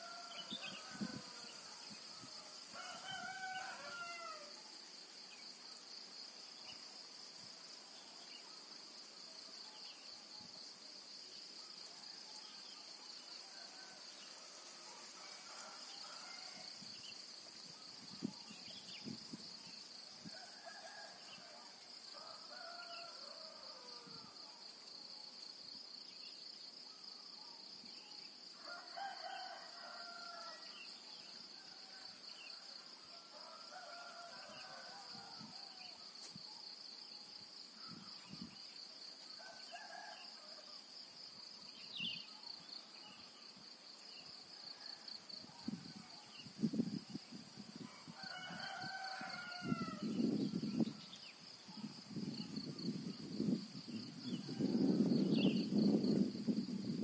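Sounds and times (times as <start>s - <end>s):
roosters crowing: 0.0s - 4.6s, 28.7s - 30.7s, 33.2s - 35.8s, 47.9s - 50.2s.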